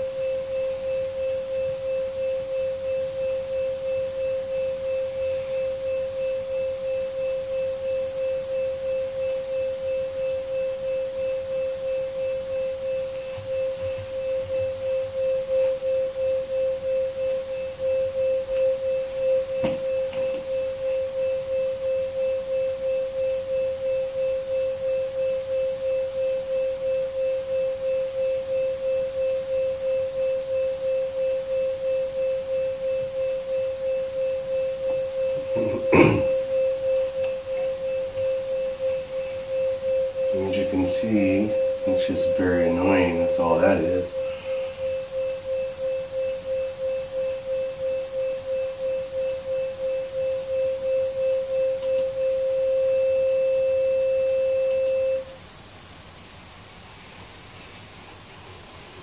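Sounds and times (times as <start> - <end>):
pulsing sine tone hum: 0.0 - 59.0
thump: 19.6 - 19.8.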